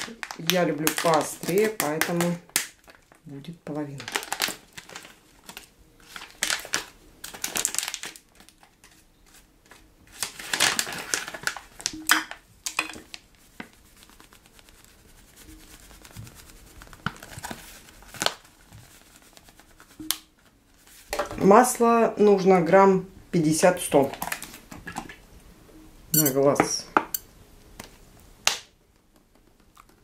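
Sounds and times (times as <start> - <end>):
pepper packet crinkling: 0.0 - 20.3.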